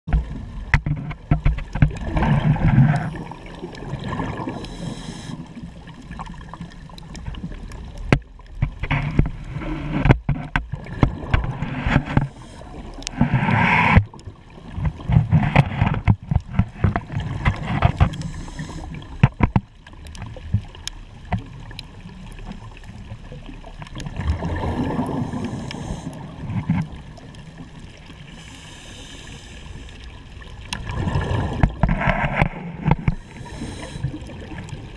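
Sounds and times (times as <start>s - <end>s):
exhaled bubbles rumbling underwater: 0.1s - 34.9s
regulator hissing inhale: 4.5s - 5.6s, 12.3s - 12.8s, 18.0s - 19.1s, 25.1s - 26.3s, 28.3s - 30.0s, 33.1s - 34.3s.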